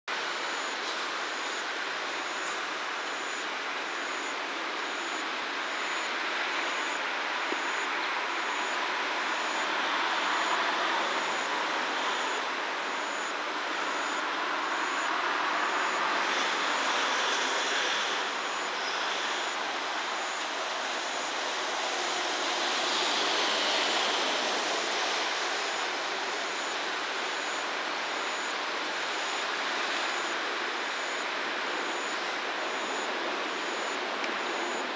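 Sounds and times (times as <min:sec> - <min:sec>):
faint high-pitched beep: 0:00.4 - 0:01.6, 0:02.2 - 0:19.6, 0:28.2 - 0:34.9.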